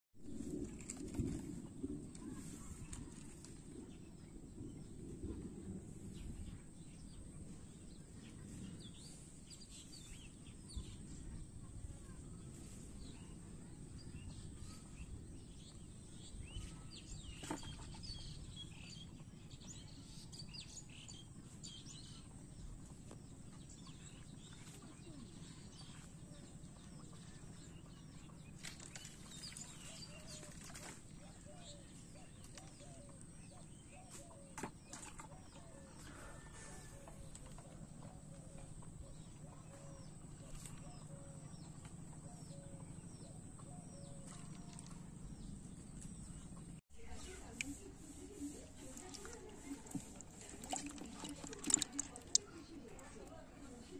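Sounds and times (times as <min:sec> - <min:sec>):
low outdoor rumble: 0:00.2 - 0:17.2, 0:35.4 - 0:53.9.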